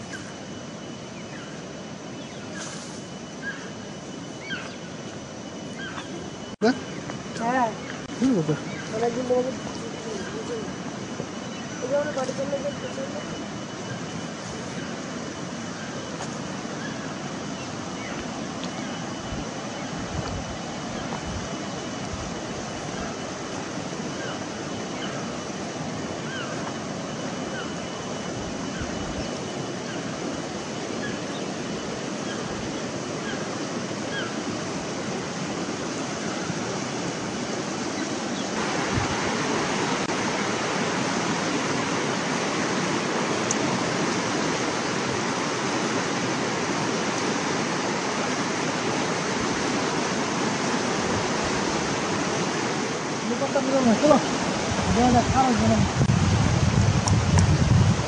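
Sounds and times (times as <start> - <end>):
river water rushing over stones: 33.0 - 56.1.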